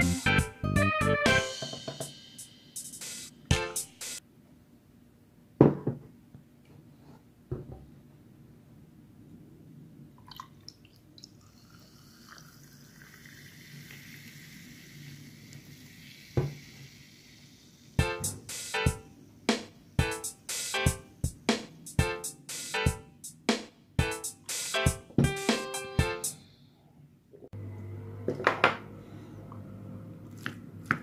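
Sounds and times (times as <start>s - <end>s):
liquid pouring into glass: 10.2s - 14.9s.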